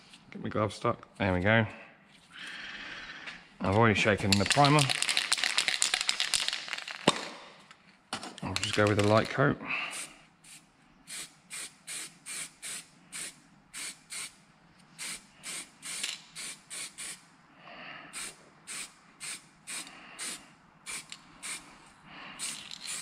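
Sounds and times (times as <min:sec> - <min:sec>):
aerosol can spraying: 0:11.2 - 0:14.3, 0:15.0 - 0:17.2, 0:22.4 - 0:23.0.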